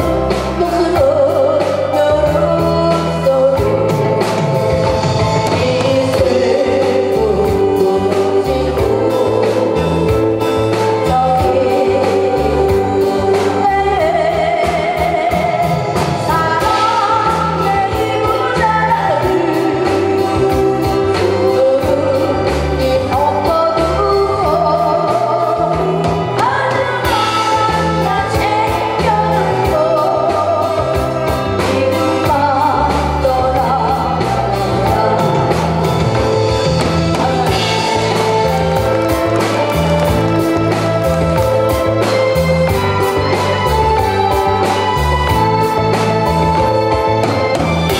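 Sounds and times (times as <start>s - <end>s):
woman singing into microphone: 0.0s - 47.6s
backing music with beat and bass: 0.0s - 47.9s.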